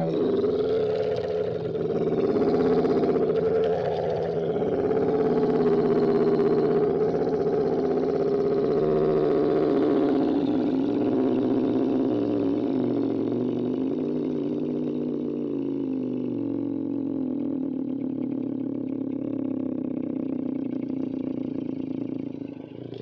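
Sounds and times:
low creature groan: 0:00.0 - 0:18.0.

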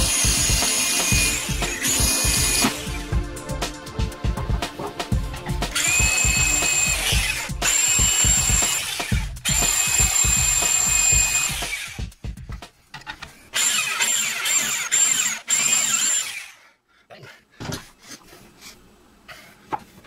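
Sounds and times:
background music with a beat: 0:00.0 - 0:12.9.

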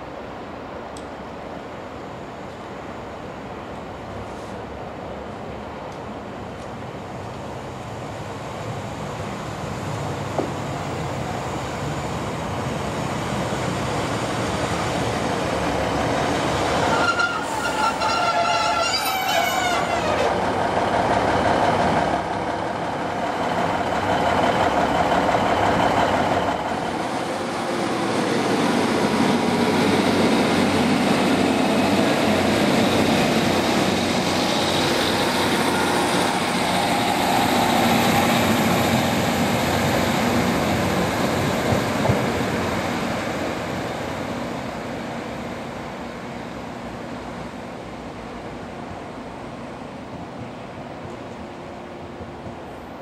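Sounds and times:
train diesel engine: 0:00.0 - 0:53.0
high squeal falling in pitch: 0:16.8 - 0:20.4.

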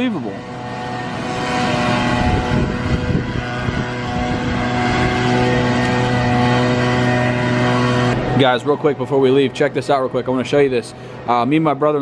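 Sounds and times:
large engine running steadily: 0:00.0 - 0:12.0
wind rumble on microphone: 0:00.7 - 0:08.4.

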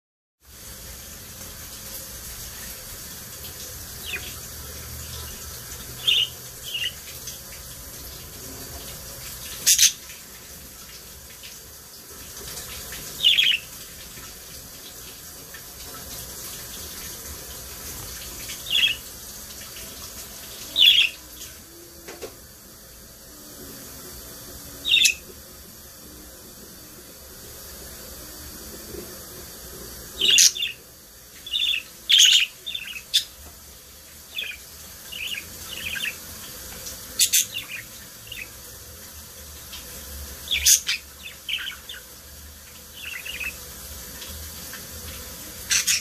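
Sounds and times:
budgerigars chirping: 0:06.0 - 0:07.0, 0:09.7 - 0:10.0, 0:13.2 - 0:13.6, 0:24.9 - 0:25.2, 0:30.2 - 0:30.8, 0:31.5 - 0:33.3, 0:34.4 - 0:36.2.

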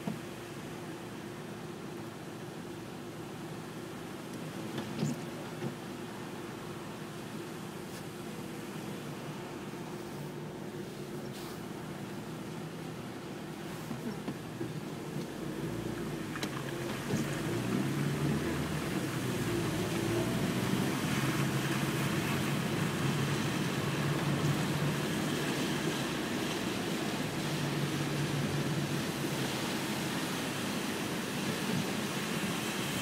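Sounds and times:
rain on windshield: 0:00.0 - 0:07.5, 0:11.6 - 0:33.0
low engine hum: 0:00.0 - 0:33.0
tyres on wet road: 0:00.0 - 0:33.0.

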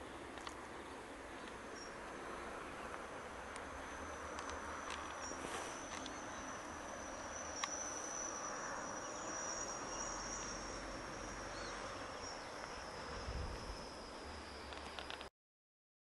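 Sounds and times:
background hiss: 0:00.0 - 0:15.3
high-pitched insect trill: 0:03.2 - 0:15.3.

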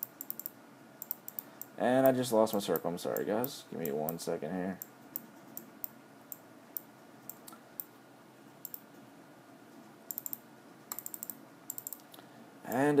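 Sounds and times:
faint steady hum: 0:00.0 - 0:13.0
mouse and keyboard clicks: 0:10.1 - 0:12.1.

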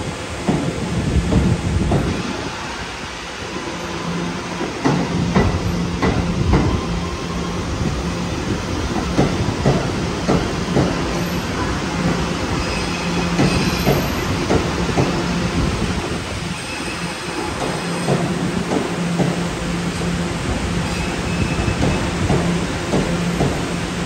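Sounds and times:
subway train wheels knocking: 0:00.0 - 0:24.0
train rumble: 0:00.0 - 0:24.0.

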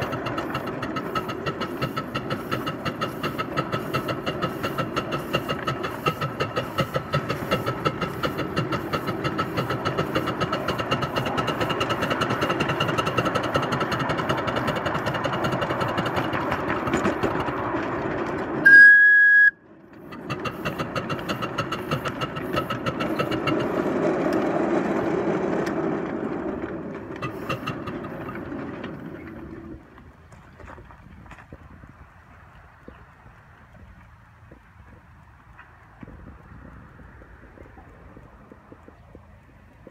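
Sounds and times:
model locomotive running: 0:00.0 - 0:30.8
locomotive whistle blast: 0:18.6 - 0:19.6.

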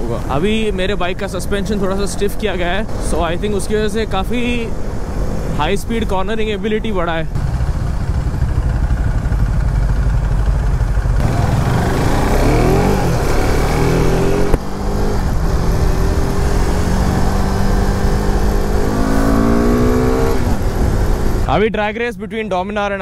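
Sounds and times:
motorcycle engine accelerating: 0:02.8 - 0:06.2, 0:07.3 - 0:21.5.

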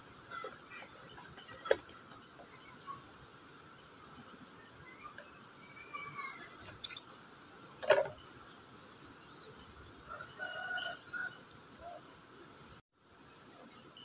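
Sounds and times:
high insect hum: 0:00.0 - 0:14.0
rooster crowing: 0:10.1 - 0:12.0.

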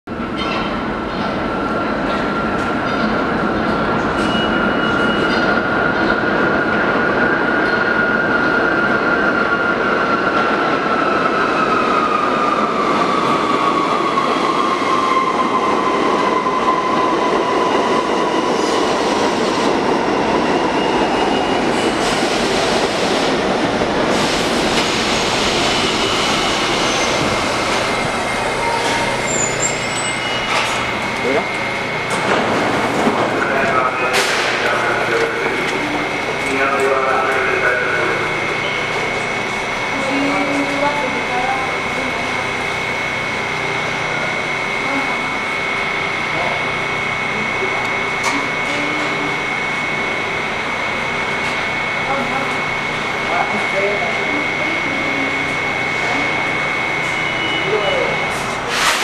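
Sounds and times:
subway train rumbling on rails: 0:00.0 - 0:59.0
air brake hiss: 0:58.4 - 0:59.0.

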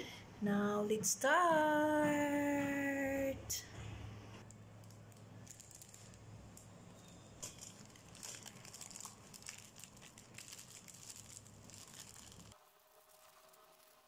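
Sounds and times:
plastic pouch crinkling: 0:04.4 - 0:06.7, 0:07.4 - 0:14.0
small scattered crackles: 0:04.4 - 0:14.0.

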